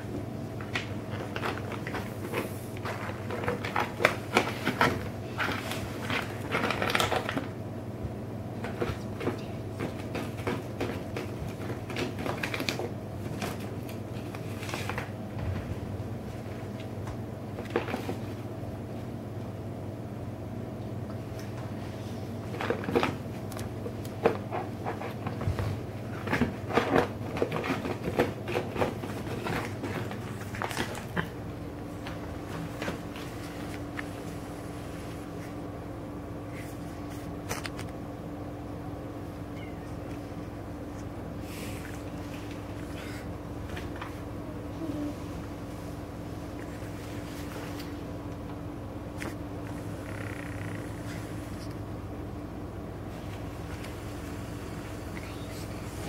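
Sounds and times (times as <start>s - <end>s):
steady low background hum: 0.0s - 56.0s.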